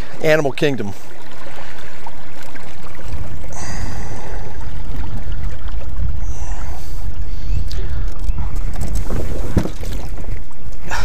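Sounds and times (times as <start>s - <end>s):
wind buffeting microphone: 3.0s - 10.9s.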